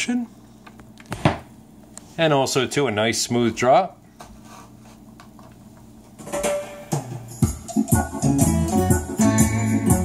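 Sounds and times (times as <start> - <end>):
band music from vinyl: 6.4 - 10.0
record groove noise: 6.4 - 10.0.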